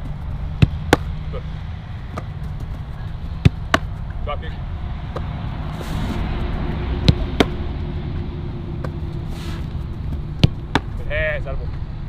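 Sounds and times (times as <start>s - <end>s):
football thuds: 0.0s - 1.2s, 2.1s - 4.1s, 7.0s - 7.6s, 8.8s - 11.0s
low outdoor rumble: 0.0s - 12.0s.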